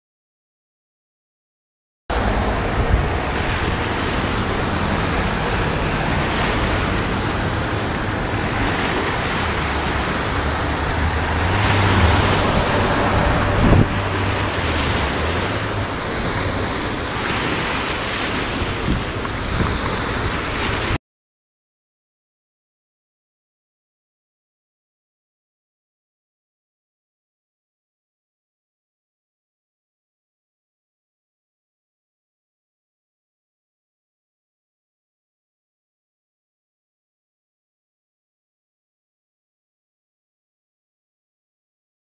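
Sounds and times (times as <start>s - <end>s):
wind buffeting microphone: 2.1s - 21.0s
small waves washing: 2.2s - 21.0s.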